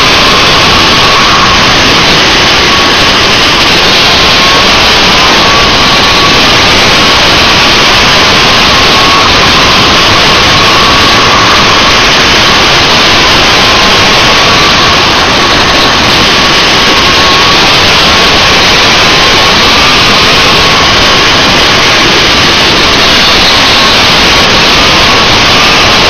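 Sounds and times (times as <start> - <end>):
two-stroke kart engine running: 0.0 - 26.0
wind rush on microphone: 0.0 - 26.0.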